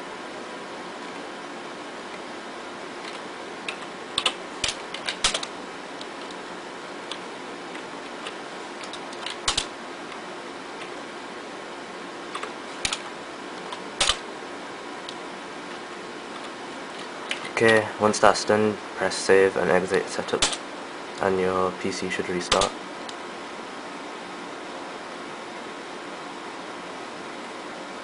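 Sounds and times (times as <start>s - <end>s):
steady hum: 0.0s - 28.0s
keyboard keys clicking: 3.1s - 6.4s, 7.1s - 9.7s, 13.7s - 14.2s, 22.5s - 22.7s.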